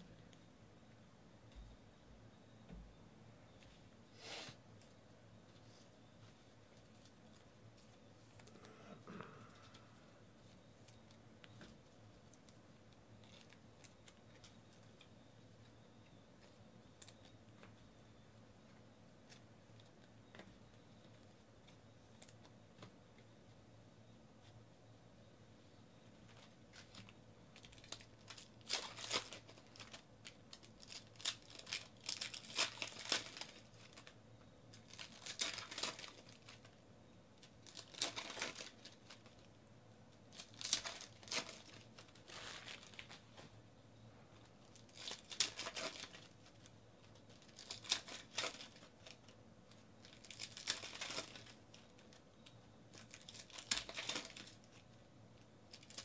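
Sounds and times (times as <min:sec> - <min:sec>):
foil card packs crinkling and tearing: 0:26.4 - 0:36.8, 0:37.4 - 0:39.5, 0:40.3 - 0:43.4, 0:44.6 - 0:52.2, 0:52.9 - 0:54.8, 0:55.7 - 0:56.0.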